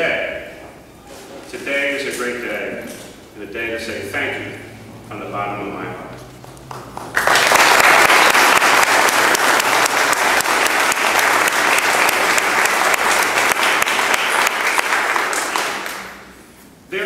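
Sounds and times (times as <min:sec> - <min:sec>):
audience applauding: 0:06.3 - 0:16.3.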